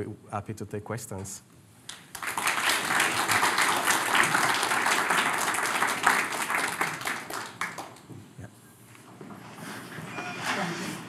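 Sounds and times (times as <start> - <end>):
audience applauding: 1.9 - 8.1.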